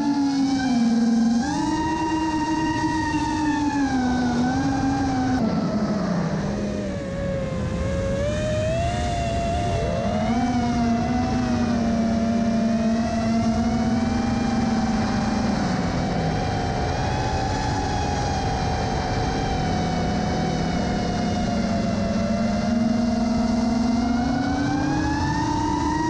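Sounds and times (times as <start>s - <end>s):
drone motors whining: 0.0s - 26.0s
wind rushing over microphone: 1.1s - 26.0s.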